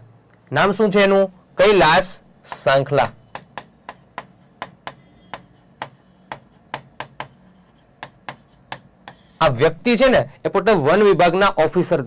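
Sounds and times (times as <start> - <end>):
stylus tapping on screen: 2.4 - 9.4.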